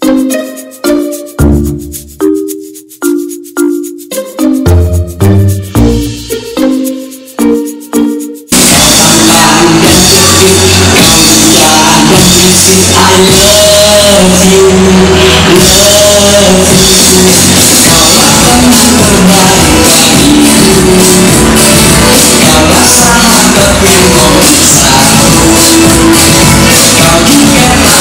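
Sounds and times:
loud music with singing: 8.5 - 28.0.

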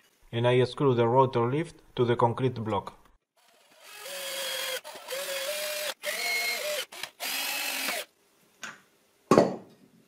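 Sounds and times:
cordless drill motor whining: 3.6 - 8.1.

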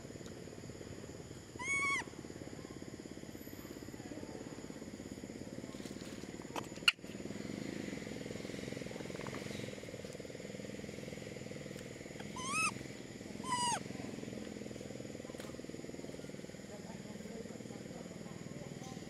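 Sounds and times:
young monkey squeaky calls: 1.6 - 2.1, 12.2 - 14.0.

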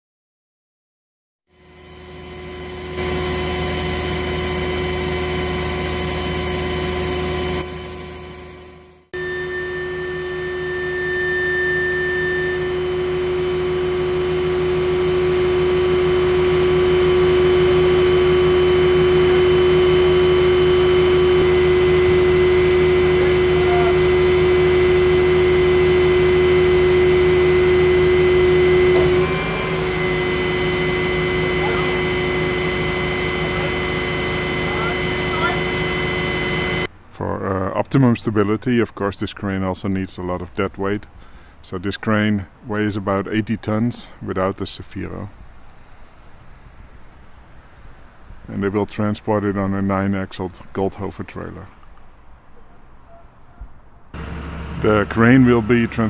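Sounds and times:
crane hydraulics whining: 1.6 - 37.2, 54.0 - 56.0.

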